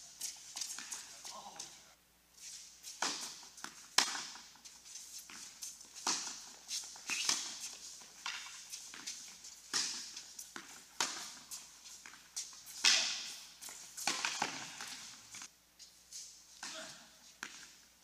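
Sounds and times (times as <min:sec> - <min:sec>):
tennis ball bouncing on hard court: 0:03.0 - 0:04.6, 0:05.2 - 0:15.5
tennis ball struck by racquets: 0:03.0 - 0:04.6, 0:06.0 - 0:09.1, 0:09.7 - 0:15.5.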